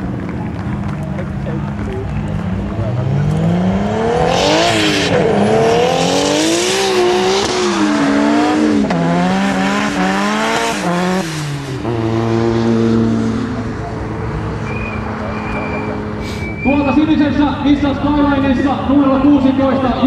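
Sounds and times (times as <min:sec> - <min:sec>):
car engine revving: 0:00.0 - 0:20.0
tyres squealing: 0:14.6 - 0:17.1.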